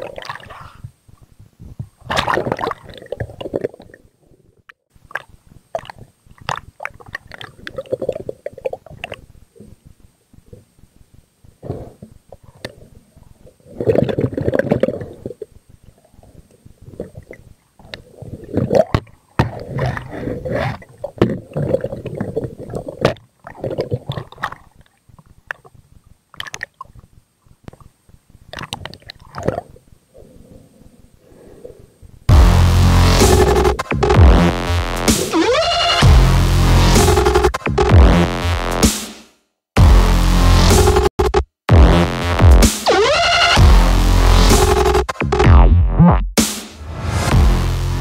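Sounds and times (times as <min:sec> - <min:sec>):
underwater gurgling and sloshing: 0:11.4 - 0:32.2.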